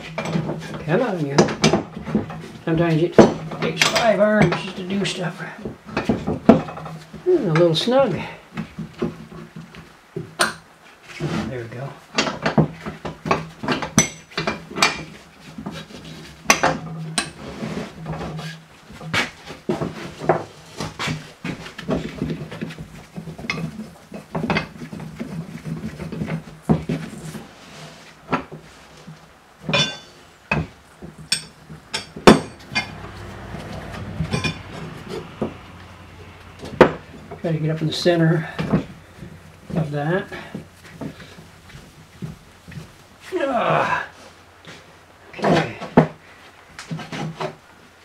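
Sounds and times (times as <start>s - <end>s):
metal clinks and knocks: 12.1s - 15.2s, 29.6s - 37.4s.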